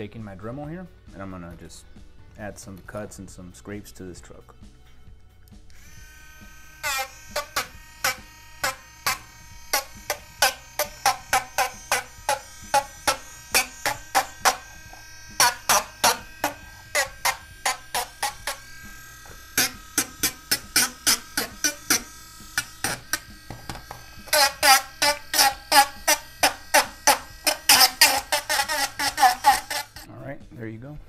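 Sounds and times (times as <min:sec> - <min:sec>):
rotary tool cutting metal: 0:05.7 - 0:30.1.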